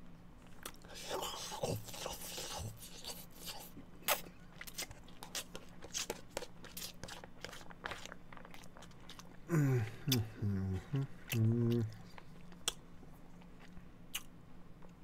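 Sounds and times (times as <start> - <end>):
person chewing spaghetti: 0.4 - 15.0
wet mouth clicks and smacks: 12.6 - 12.8, 13.6 - 14.3.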